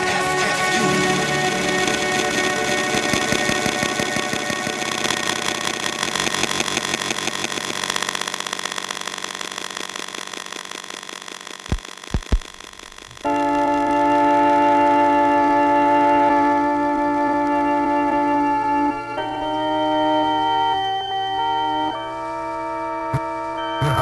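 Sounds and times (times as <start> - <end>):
electronic beat music: 0.0 - 5.5.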